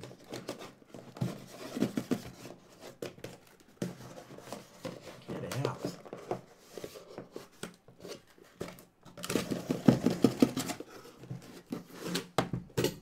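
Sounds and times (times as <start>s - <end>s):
cardboard packaging being opened: 4.3s - 12.4s.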